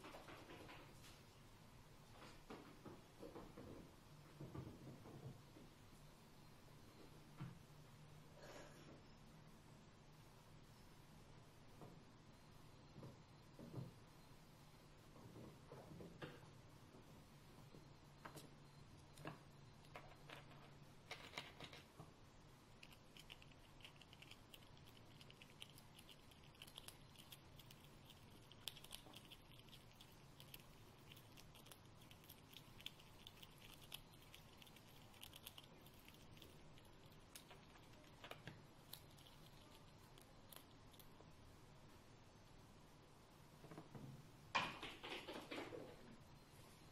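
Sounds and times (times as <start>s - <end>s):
squirrel gnawing a nut: 22.6s - 41.5s.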